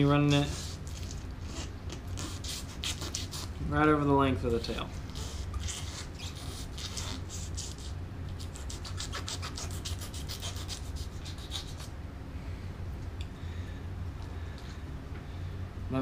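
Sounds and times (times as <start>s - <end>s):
knife rasping through fish skin: 0.3s - 3.6s, 5.1s - 11.9s.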